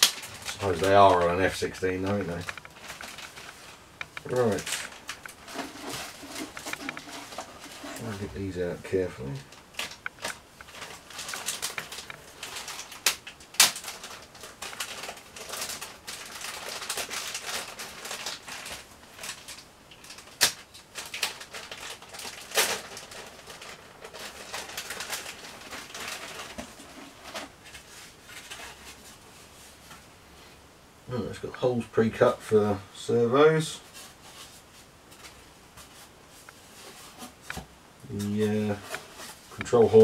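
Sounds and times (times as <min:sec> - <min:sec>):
plastic bag crinkling and tearing: 0:00.0 - 0:29.2.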